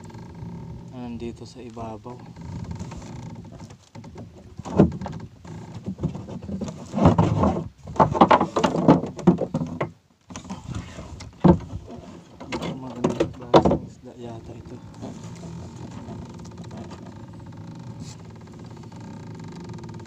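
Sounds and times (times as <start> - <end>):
fishing line rubbing and rustling: 14.3 - 19.9.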